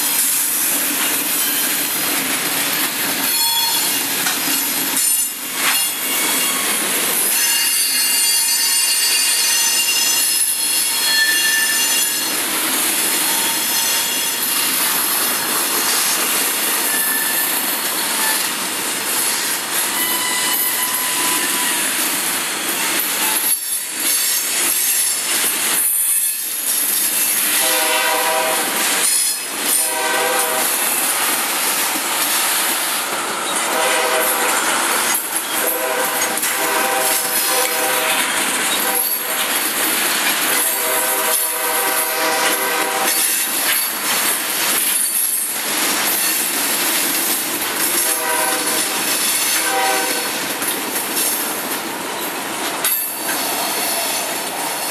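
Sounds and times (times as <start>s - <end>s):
freight cars wheel-on-rail noise: 0.0s - 54.9s
high-pitched wheel squeal: 3.2s - 4.0s, 5.7s - 12.3s, 16.8s - 18.5s, 19.8s - 21.9s
multi-tone horn bursts: 27.6s - 28.8s, 29.8s - 30.8s, 33.7s - 34.6s, 35.6s - 38.2s, 40.6s - 43.2s, 48.0s - 48.8s, 49.6s - 50.3s.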